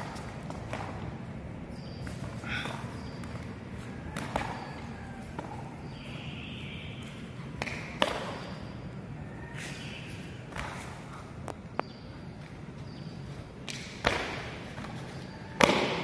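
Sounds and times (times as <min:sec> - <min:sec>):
bare feet slapping on mats: 0:00.0 - 0:05.7, 0:10.4 - 0:11.3
practice weapon hitting mats: 0:13.6 - 0:16.0.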